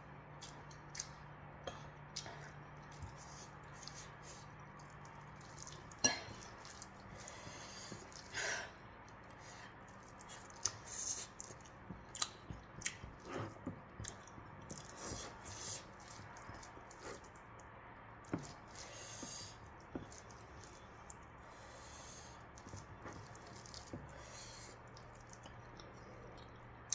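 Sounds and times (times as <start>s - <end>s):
chewing and mouth smacks: 0.3s - 8.3s, 9.0s - 21.4s, 22.2s - 26.9s
fingers squishing rice in a bowl: 2.5s - 8.3s, 9.0s - 25.9s.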